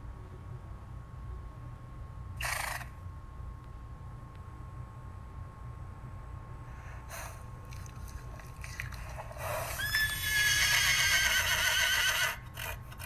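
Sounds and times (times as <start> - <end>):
horse neighing: 9.5 - 12.8.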